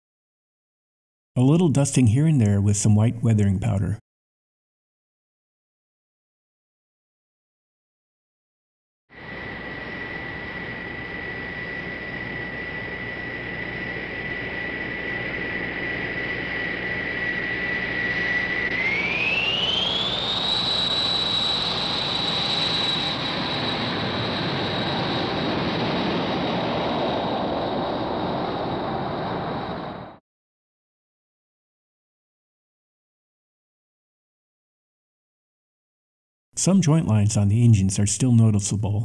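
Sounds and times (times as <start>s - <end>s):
jet engine roar: 9.1s - 30.2s
jet engine whine: 9.1s - 30.2s.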